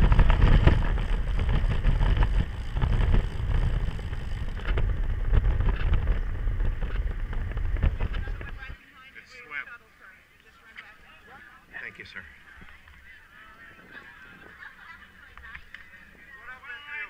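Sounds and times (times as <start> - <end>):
tyre noise on road: 0.0 - 8.8
wind buffeting microphone: 0.0 - 8.8.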